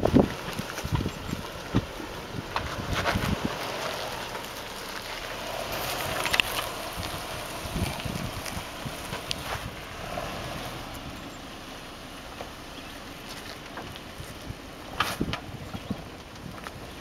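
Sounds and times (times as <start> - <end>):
tyres grinding on stone: 0.0 - 11.0
engine running at low speed: 0.0 - 17.0.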